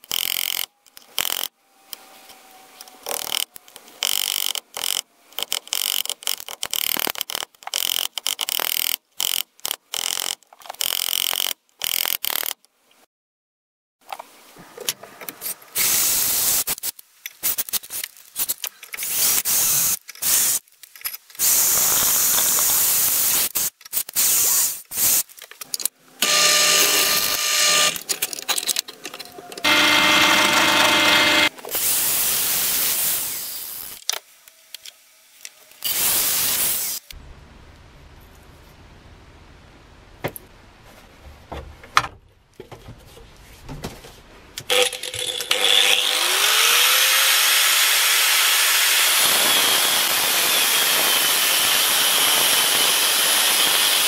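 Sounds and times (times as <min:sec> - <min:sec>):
drill bit cutting metal: 0:26.2 - 0:28.0, 0:29.6 - 0:31.5, 0:44.7 - 0:54.0
drill press motor: 0:26.2 - 0:28.0, 0:29.6 - 0:31.6, 0:44.7 - 0:54.0.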